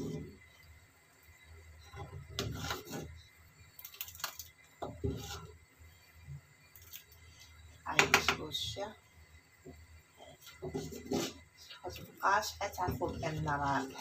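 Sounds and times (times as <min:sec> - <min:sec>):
spoon stirring thick soup: 0:04.4 - 0:05.6, 0:09.6 - 0:11.6.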